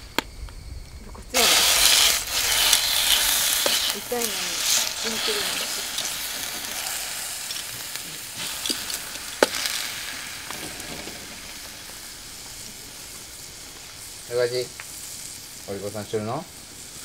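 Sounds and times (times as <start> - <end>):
meat sizzling in a pan: 1.3 - 17.0.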